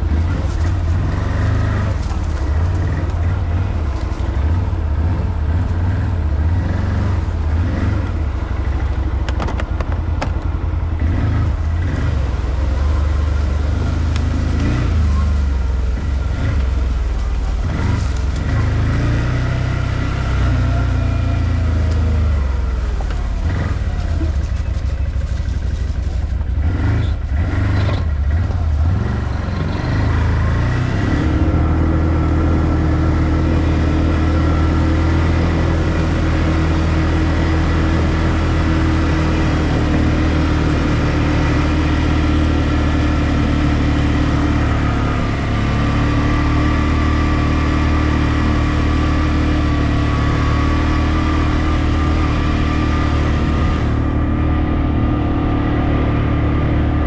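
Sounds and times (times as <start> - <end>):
quad bike engine revving: 0.0 - 3.8, 4.4 - 10.3, 10.9 - 24.7, 26.5 - 57.0.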